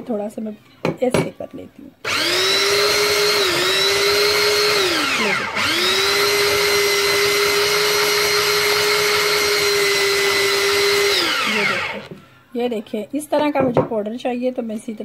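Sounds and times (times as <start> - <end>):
grater motor whining: 2.0 - 12.2.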